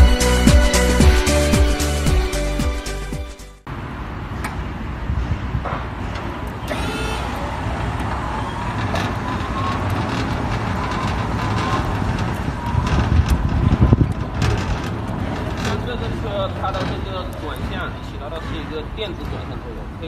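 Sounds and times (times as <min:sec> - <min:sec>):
low outdoor rumble: 0:07.7 - 0:20.0.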